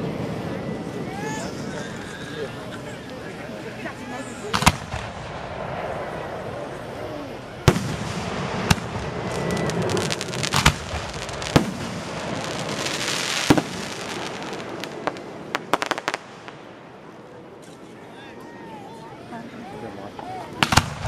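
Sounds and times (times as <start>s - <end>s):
fireworks crackling hiss: 0.0s - 18.0s, 20.1s - 21.0s
small firework pops: 4.5s - 5.4s, 7.7s - 12.0s, 13.4s - 13.8s, 20.6s - 21.0s
firework shells banging: 7.7s - 16.6s.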